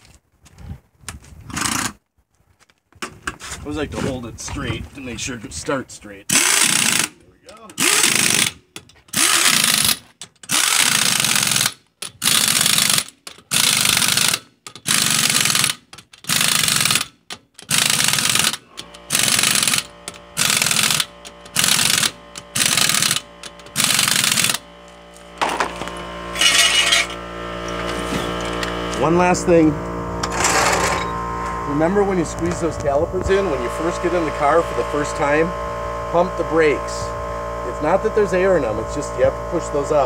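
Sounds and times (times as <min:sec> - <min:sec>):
pneumatic impact wrench bursts: 0:01.5 - 0:02.0, 0:06.3 - 0:29.0, 0:30.2 - 0:31.2
steady hum: 0:17.8 - 0:40.0.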